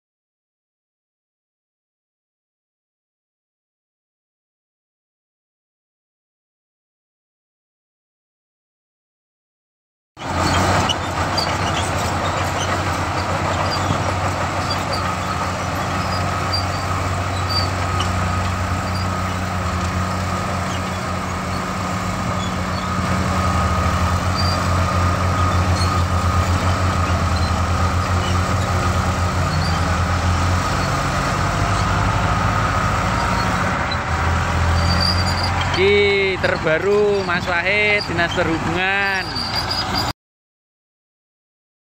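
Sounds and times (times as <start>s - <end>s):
bulldozer diesel engine running: 10.2s - 40.1s.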